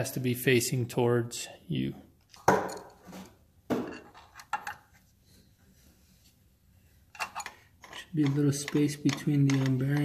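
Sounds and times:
metal tools clanking: 7.1s - 10.0s.

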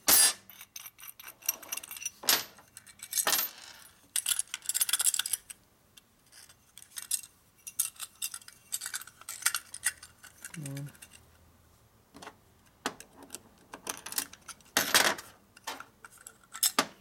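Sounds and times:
small metal parts clinking: 0.1s - 5.6s, 6.2s - 11.3s, 13.3s - 16.9s.

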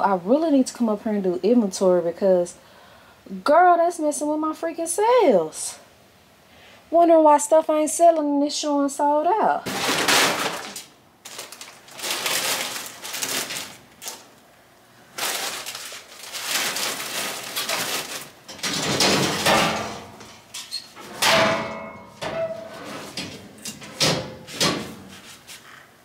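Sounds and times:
plastic packaging rustling: 9.6s - 19.9s
clattering: 16.5s - 25.0s
metal chute door opening and shutting: 18.5s - 25.1s.

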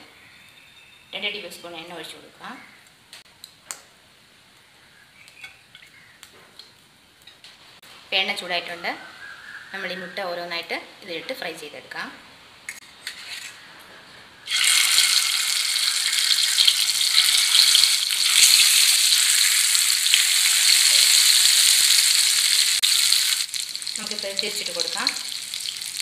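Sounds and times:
eggs sizzling in hot oil: 14.5s - 26.0s.

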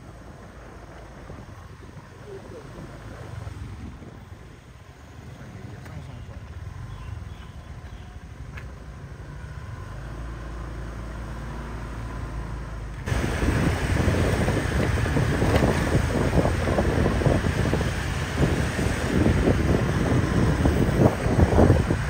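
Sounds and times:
wind buffeting microphone: 0.0s - 4.9s, 13.1s - 22.0s
motor vehicle rumble: 0.0s - 22.0s
scooter engine noise: 0.0s - 22.0s.

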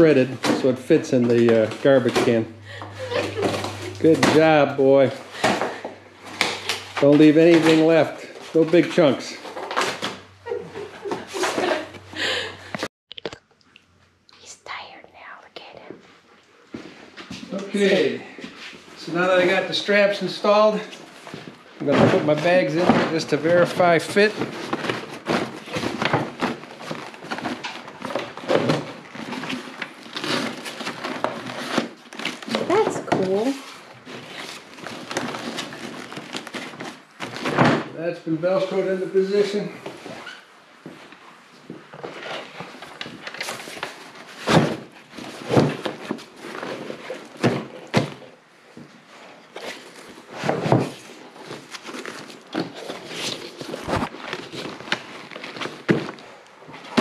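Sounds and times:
nylon bags rustling and scraping: 0.0s - 10.6s, 17.8s - 40.5s, 49.0s - 57.0s.

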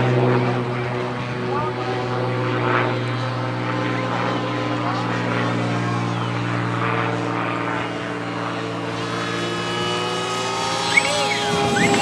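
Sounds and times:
electric propeller motor whining: 2.7s - 12.0s.

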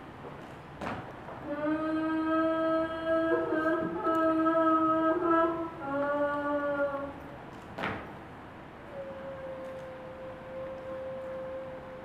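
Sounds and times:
second voice singing: 1.4s - 7.2s
woman singing held notes: 1.4s - 7.3s, 8.9s - 12.0s.

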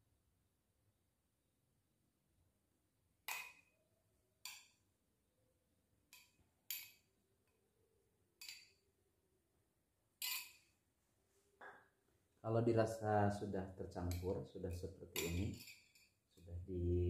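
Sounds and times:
metal spoon clinking on glass bowl: 10.2s - 10.7s, 15.1s - 16.2s.

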